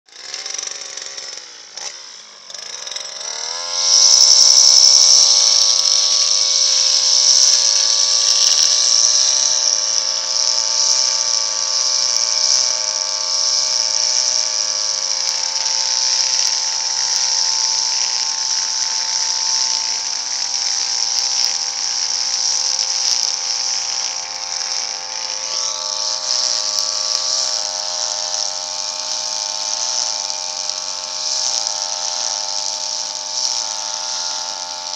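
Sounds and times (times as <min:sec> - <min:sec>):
brush cutter engine cutting grass: 0:00.1 - 0:34.9.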